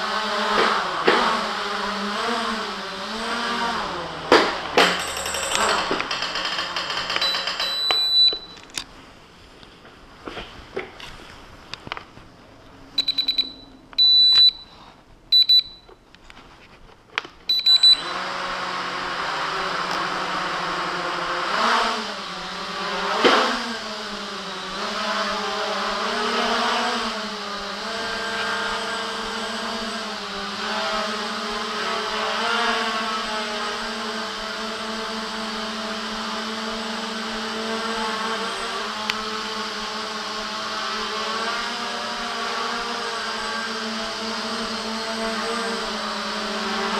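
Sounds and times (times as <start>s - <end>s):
quadcopter motors whining: 0.0s - 8.9s, 17.4s - 46.9s
short high electronic beeps: 7.2s - 8.6s, 13.0s - 14.7s, 17.5s - 18.1s.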